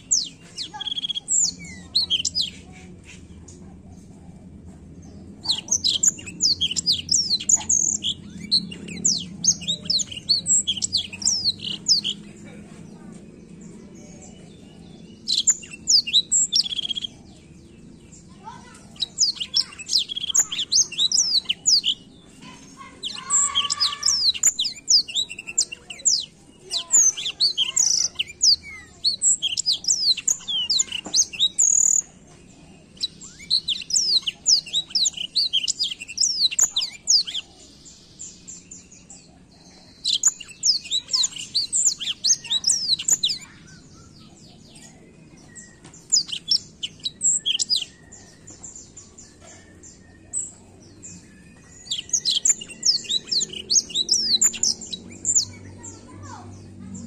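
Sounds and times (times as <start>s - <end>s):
bird singing high twittering song: 0.0s - 57.0s.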